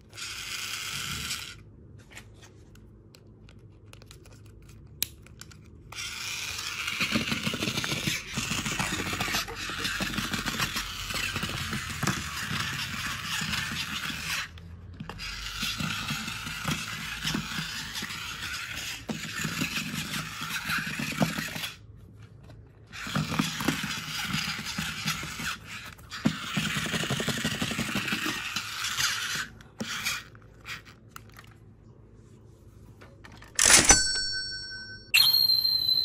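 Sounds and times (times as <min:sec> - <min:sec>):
toy train motor whirring: 0:00.0 - 0:01.6, 0:05.9 - 0:21.8, 0:22.9 - 0:31.0.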